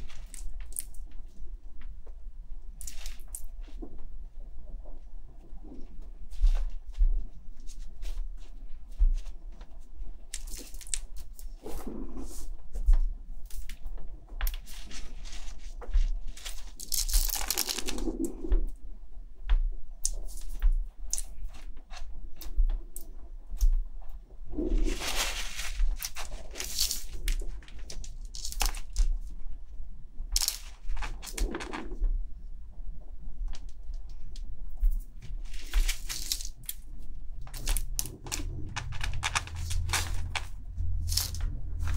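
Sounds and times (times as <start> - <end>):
low hum: 21.8 - 41.9
tissue paper rustling: 24.6 - 29.0, 30.4 - 32.0, 35.2 - 36.8, 37.5 - 41.9.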